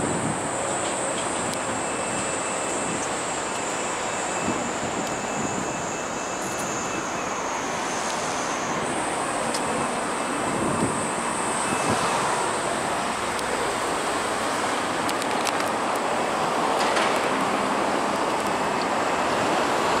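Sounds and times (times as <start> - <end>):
road traffic: 0.0 - 20.0
thin high whine: 0.5 - 14.9.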